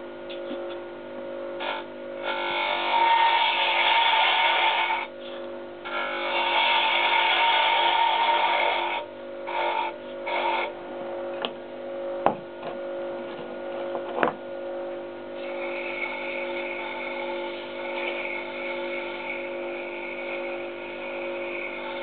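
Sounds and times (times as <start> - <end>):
wood lathe motor humming: 1.6 - 5.1, 5.8 - 10.8, 15.4 - 22.0.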